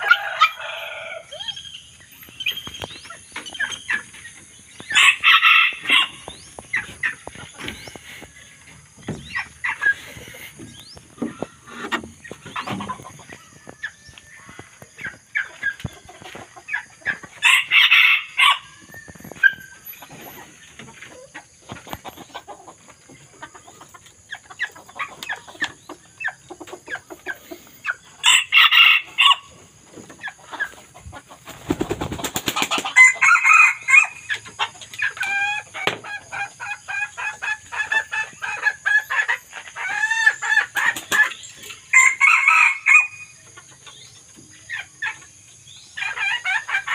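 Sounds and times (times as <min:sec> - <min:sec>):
rooster crowing: 0:00.0 - 0:01.4, 0:33.0 - 0:34.2, 0:41.9 - 0:43.2
rapid clucking calls: 0:02.3 - 0:18.6, 0:19.5 - 0:33.2, 0:34.2 - 0:41.9.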